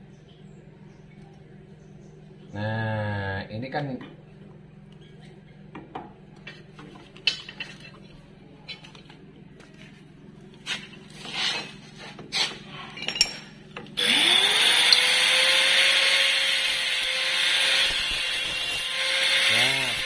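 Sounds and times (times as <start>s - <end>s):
power tool whine: 14.0s - 20.0s
loud hissing: 19.4s - 20.0s.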